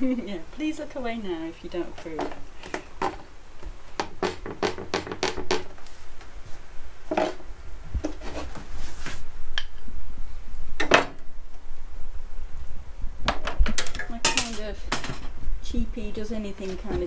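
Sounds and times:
chisel knocking on wood: 4.0s - 5.7s.

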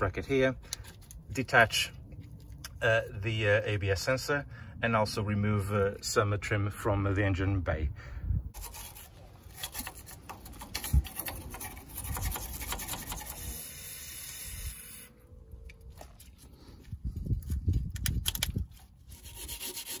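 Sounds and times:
wire brush scrubbing metal: 8.6s - 15.1s, 19.0s - 20.0s.

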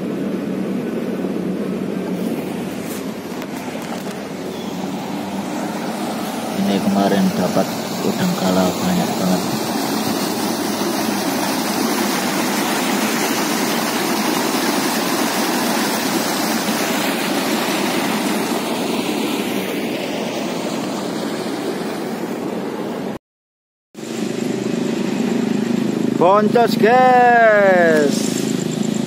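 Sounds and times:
low steady hum: 0.0s - 19.7s
river water rushing over weir: 0.0s - 23.2s.

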